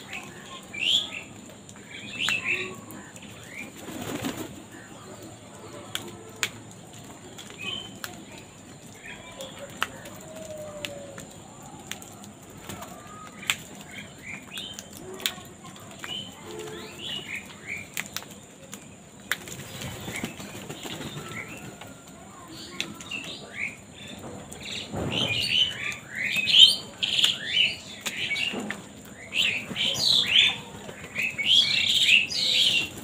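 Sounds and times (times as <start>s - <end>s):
crow wings flapping: 3.2s - 4.9s, 19.2s - 22.2s.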